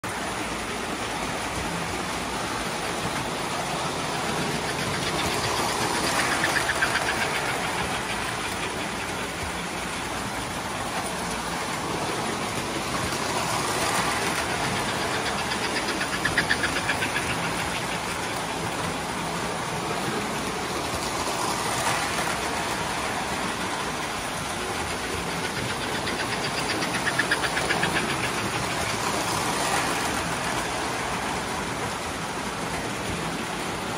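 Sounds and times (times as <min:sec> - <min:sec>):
toy trains rumbling on track: 0:00.0 - 0:33.9.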